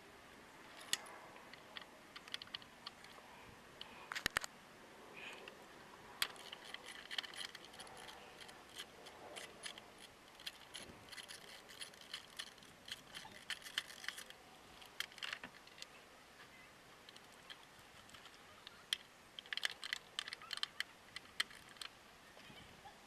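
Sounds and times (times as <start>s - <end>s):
metal hand tools clicking: 6.2s - 15.4s.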